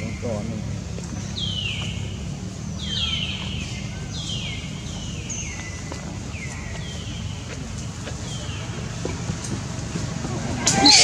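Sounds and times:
whistle-like animal calls: 0:10.6 - 0:11.0.

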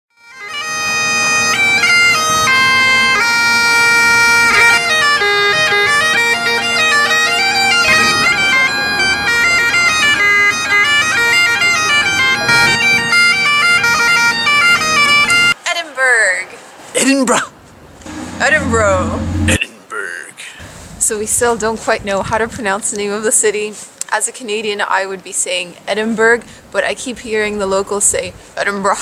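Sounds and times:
bagpipes playing a tune: 0:00.2 - 0:15.6.

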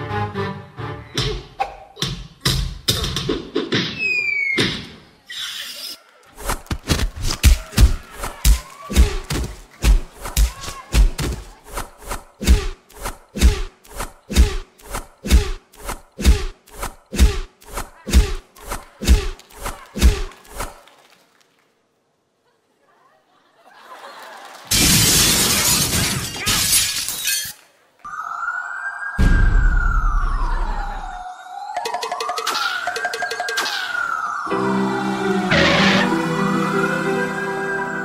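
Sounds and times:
heavy rhythmic thumps: 0:12.4 - 0:18.5.

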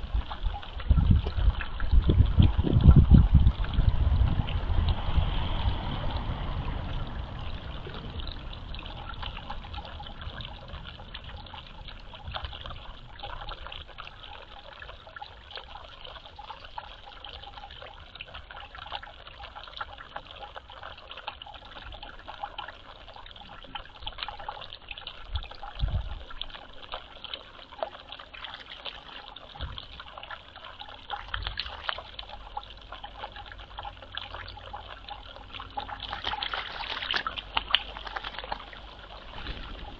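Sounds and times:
low rumble: 0:00.0 - 0:13.7
water trickling and dripping: 0:00.0 - 0:39.9.

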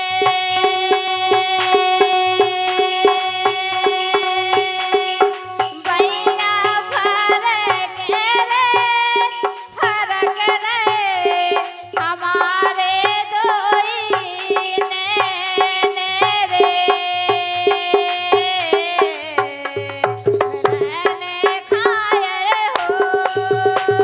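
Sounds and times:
low steady beat: 0:00.0 - 0:16.8
keyed banjo melody: 0:00.0 - 0:19.6
brass hand rattle shaking: 0:02.7 - 0:20.8.

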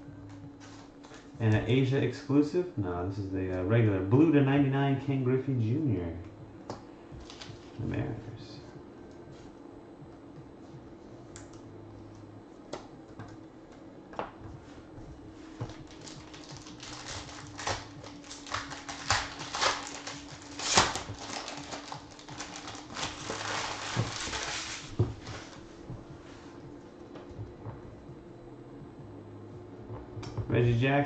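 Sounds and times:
foil pack crinkling: 0:07.2 - 0:07.8, 0:15.5 - 0:25.6
cards clicking: 0:15.6 - 0:25.5.

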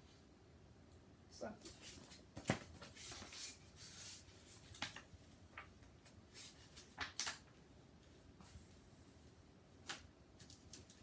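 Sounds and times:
book pages rustling: 0:01.7 - 0:07.4.

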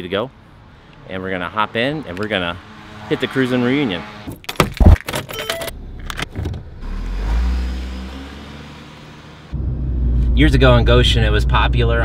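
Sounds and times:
car pulling away: 0:06.6 - 0:12.0.

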